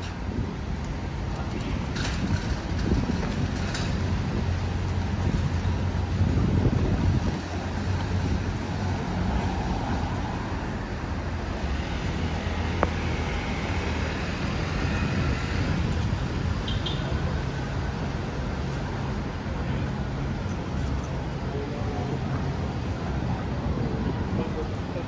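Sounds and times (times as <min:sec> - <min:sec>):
street traffic hum: 0:00.0 - 0:25.0.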